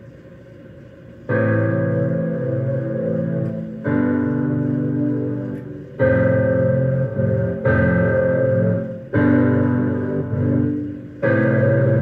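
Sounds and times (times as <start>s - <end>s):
electronic keyboard piano chords: 1.3s - 12.0s.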